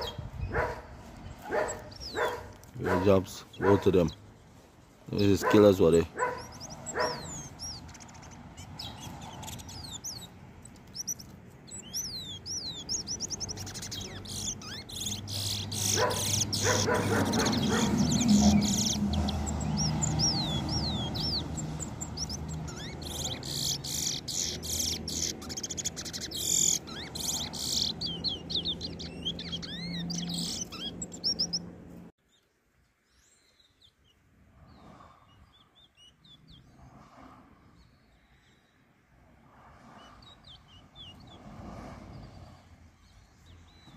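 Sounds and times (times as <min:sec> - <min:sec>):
finches chirping and trilling: 0:00.0 - 0:04.4, 0:05.1 - 0:32.4, 0:33.1 - 0:36.8, 0:40.0 - 0:41.4.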